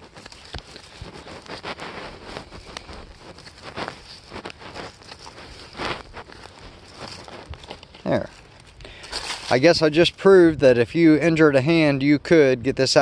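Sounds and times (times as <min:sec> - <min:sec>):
fabric scuffing and rustling: 0:00.0 - 0:09.6.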